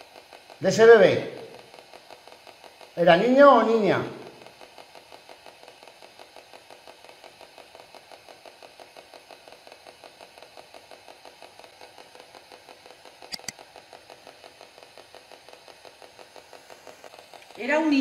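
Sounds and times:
mouse clicks: 13.3s - 13.6s.

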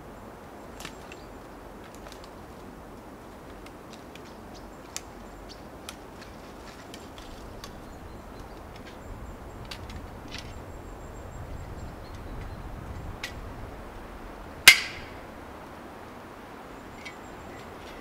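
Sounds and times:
dry twigs snapping underfoot: 0.7s - 10.6s, 14.7s - 15.3s.

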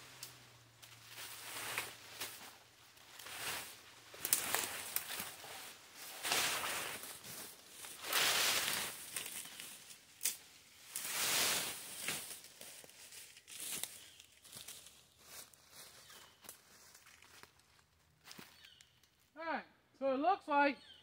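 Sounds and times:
leafy branches rustling: 0.0s - 18.9s
twigs snapping clicks: 4.2s - 5.2s, 10.2s - 10.4s.

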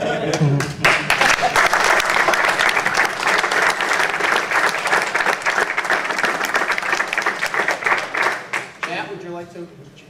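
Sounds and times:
people applauding: 0.2s - 9.2s.

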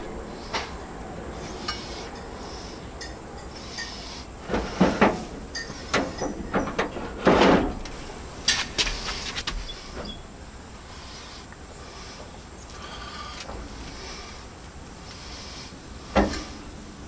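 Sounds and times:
wire racks clinking on metal: 3.0s - 9.3s.

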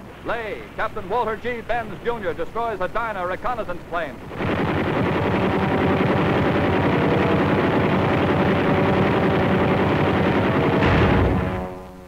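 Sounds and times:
aircraft engine drone: 3.8s - 12.0s.

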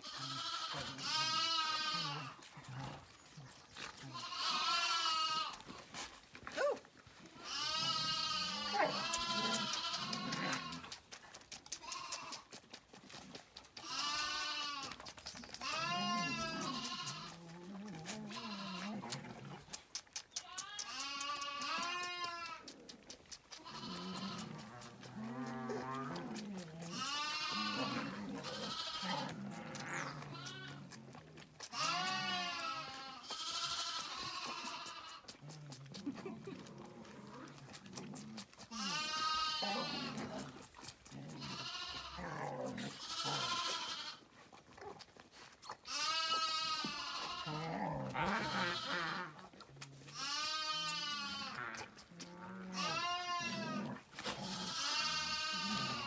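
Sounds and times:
sheep bleating: 0.0s - 2.5s, 4.0s - 5.7s, 7.4s - 11.0s, 11.7s - 12.5s, 13.8s - 15.0s, 15.6s - 19.2s, 20.4s - 22.7s, 23.6s - 31.0s, 31.6s - 35.3s, 38.7s - 40.5s, 41.3s - 44.3s, 45.8s - 49.4s, 50.1s - 51.9s, 52.5s - 56.0s.

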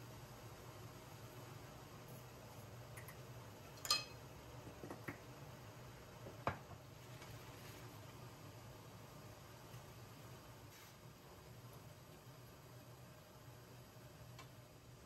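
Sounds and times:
low steady hum: 0.0s - 15.0s
kitchenware clinking and knocking: 3.8s - 4.2s.

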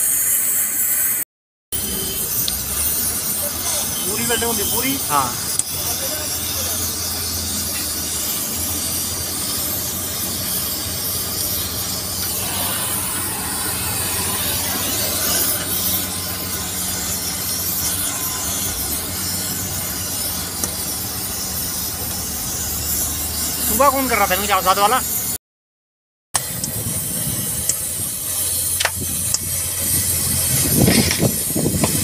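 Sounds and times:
cutting torch hissing: 0.0s - 25.4s, 26.4s - 32.0s.

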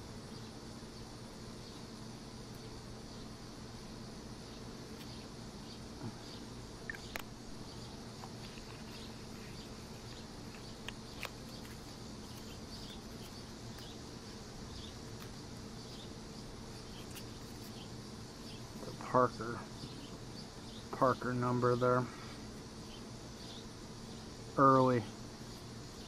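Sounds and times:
steady low hum: 0.0s - 26.0s
faint high chirping: 4.4s - 22.0s.

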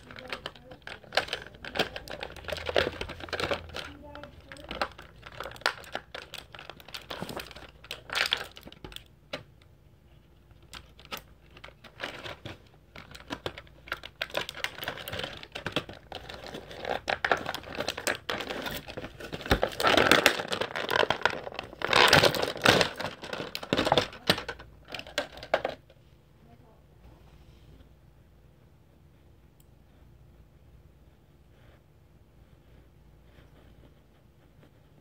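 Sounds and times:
plastic packaging crinkling: 0.0s - 9.1s, 10.5s - 25.8s.

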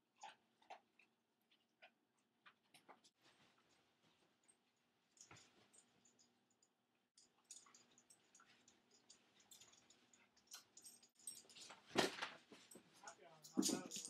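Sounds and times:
dogs' claws clicking: 7.2s - 14.0s.

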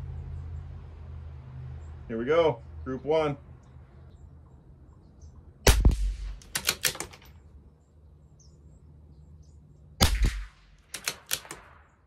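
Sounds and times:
rifle shot: 5.6s - 7.2s, 10.0s - 12.0s
rifle bolt metallic clicks: 5.7s - 7.4s, 10.0s - 11.8s.

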